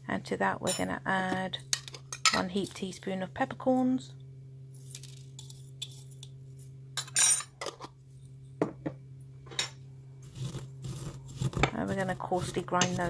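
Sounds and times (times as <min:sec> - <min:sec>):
steady low hum: 0:00.0 - 0:13.0
spice tin rattle: 0:04.8 - 0:06.3.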